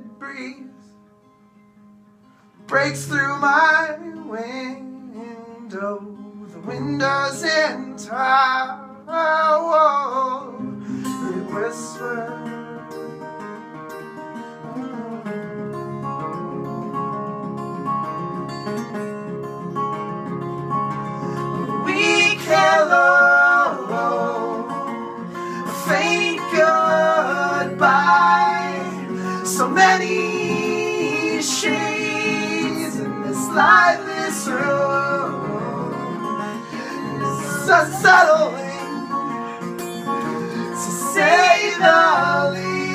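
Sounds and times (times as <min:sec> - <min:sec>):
acoustic guitars playing: 0:00.0 - 0:42.9
people singing: 0:21.4 - 0:42.9.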